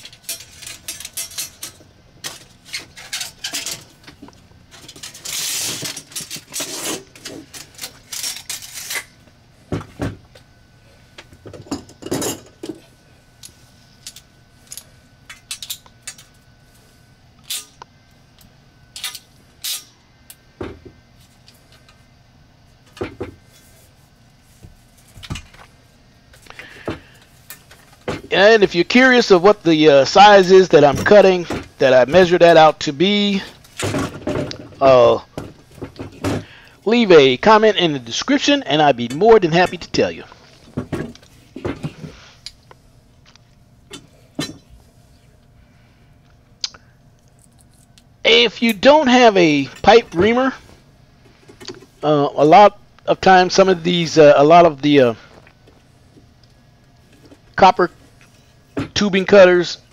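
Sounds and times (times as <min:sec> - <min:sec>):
tools clicking and clattering: 0:00.0 - 0:09.0, 0:14.0 - 0:16.4, 0:18.9 - 0:19.9.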